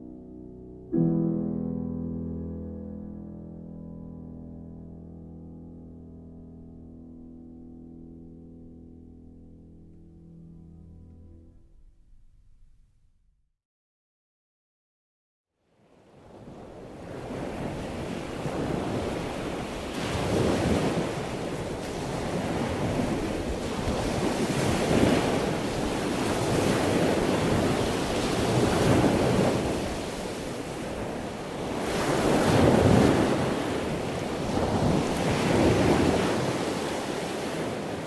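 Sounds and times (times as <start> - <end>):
ocean waves breaking: 16.1 - 38.0.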